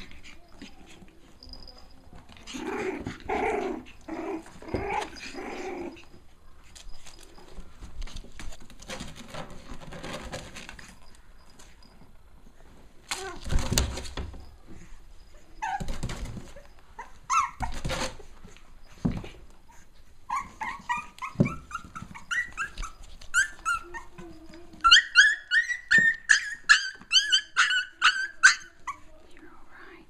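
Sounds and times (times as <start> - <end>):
puppies scuffling: 0.0 - 29.2
puppies yipping: 15.6 - 18.0, 19.7 - 29.0.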